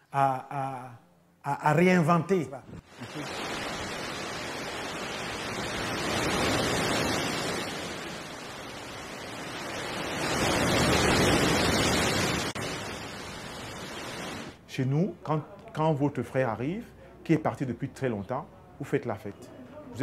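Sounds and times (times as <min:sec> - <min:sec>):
sea waves washing ashore: 0:02.8 - 0:14.6.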